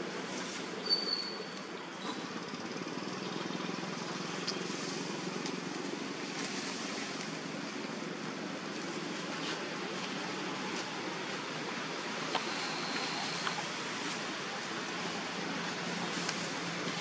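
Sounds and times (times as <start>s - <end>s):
wind-like background hiss: 0.0s - 17.0s
faint clicks: 12.3s - 14.2s.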